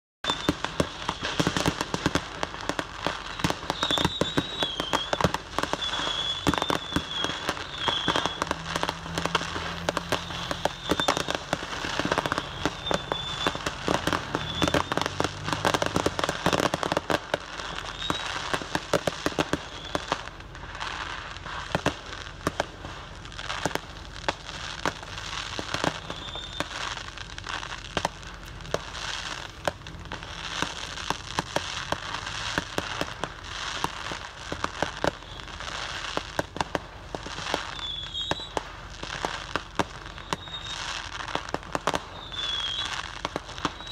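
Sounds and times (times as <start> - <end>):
wavering high whistle: 0.2 - 1.6, 3.1 - 16.7, 17.6 - 18.6, 19.4 - 20.2, 25.8 - 26.9, 37.6 - 38.6, 40.1 - 41.0, 42.0 - 43.9
fireworks bangs and crackling: 0.2 - 43.9.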